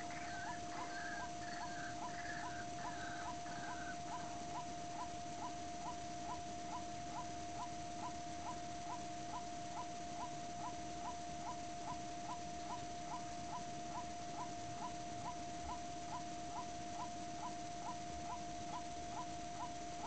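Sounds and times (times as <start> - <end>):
waterhen calling: 0.0 - 4.4.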